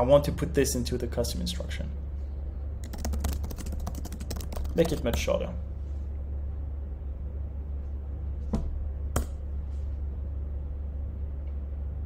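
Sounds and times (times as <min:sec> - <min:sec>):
low electrical hum: 0:00.0 - 0:12.0
computer keyboard keystrokes: 0:02.8 - 0:05.2.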